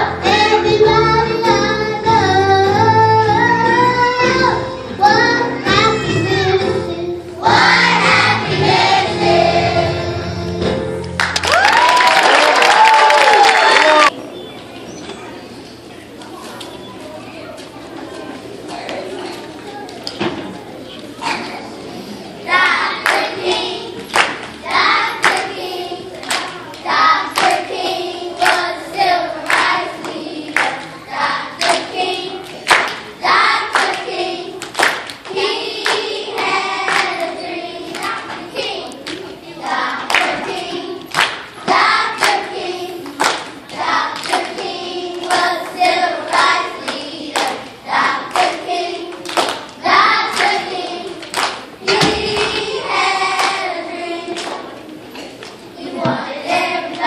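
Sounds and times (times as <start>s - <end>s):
children's choir singing: 0.0s - 11.1s, 21.2s - 57.0s
children clapping hands: 11.0s - 14.1s, 23.0s - 23.3s, 24.1s - 24.6s, 25.2s - 25.5s, 26.2s - 27.7s, 28.4s - 28.7s, 29.4s - 30.9s, 31.6s - 31.9s, 32.5s - 33.1s, 33.7s - 34.0s, 34.6s - 37.2s, 37.9s - 39.3s, 40.1s - 41.5s, 42.2s - 42.5s, 43.1s - 45.6s, 46.3s - 47.6s, 48.3s - 51.7s, 52.3s - 52.8s, 53.4s - 53.7s, 54.3s - 54.7s.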